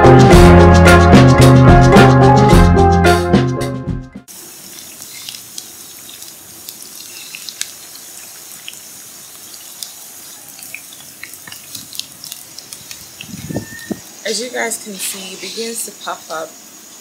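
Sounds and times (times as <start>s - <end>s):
batter sizzling in hot oil: 4.3s - 14.5s.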